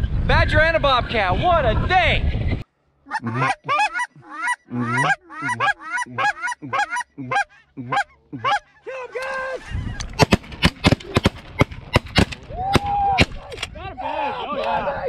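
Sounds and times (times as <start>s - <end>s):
geese honking: 3.1s - 8.8s
shotgun shots: 10.2s - 13.4s.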